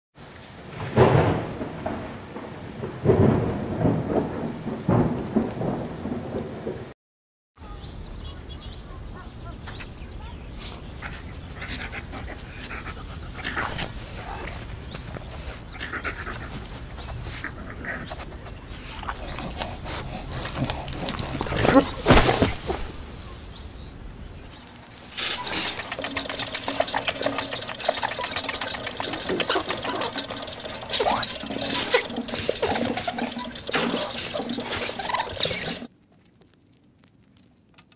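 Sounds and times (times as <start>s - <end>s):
steady rain: 0.2s - 7.0s, 11.0s - 35.9s
thunder rumbling: 0.6s - 7.0s
hamster wheel rattling: 18.8s - 22.1s, 25.0s - 35.9s.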